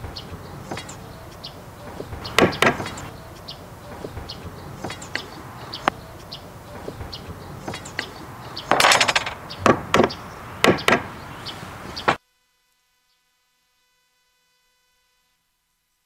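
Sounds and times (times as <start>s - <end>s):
small birds chirping: 0.0s - 12.2s
hatchet knocking wood: 2.3s - 3.1s, 4.8s - 5.4s, 7.6s - 11.2s.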